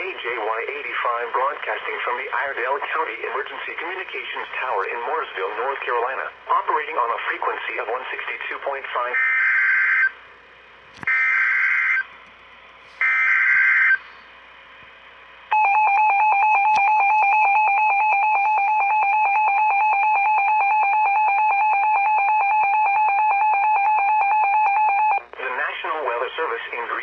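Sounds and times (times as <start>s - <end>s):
steady warning alarm tone: 9.0s - 10.3s, 11.0s - 12.2s, 13.0s - 14.2s, 15.4s - 25.4s.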